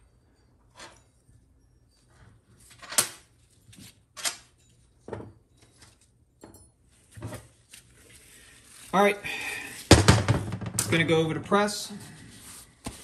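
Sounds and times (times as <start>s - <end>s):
metal parts knocking on workbench: 9.9s - 11.1s.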